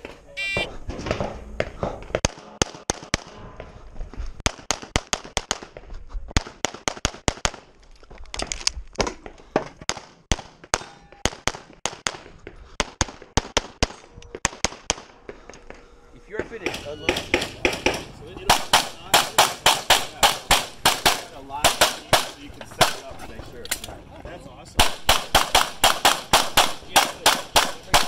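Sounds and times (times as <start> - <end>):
rapid pistol fire: 6.4 - 7.7, 9.8 - 15.2, 17.3 - 23.0, 24.8 - 28.0.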